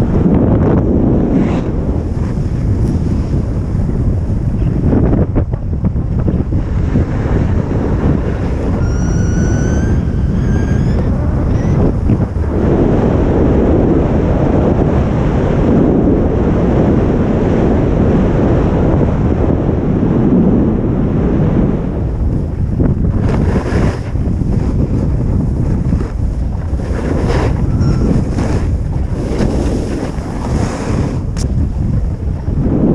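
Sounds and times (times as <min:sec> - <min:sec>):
wind buffeting microphone: 0:00.0 - 0:32.9
high whistling tones: 0:08.7 - 0:11.9, 0:27.7 - 0:28.3
skis sliding over snow: 0:23.2 - 0:31.4.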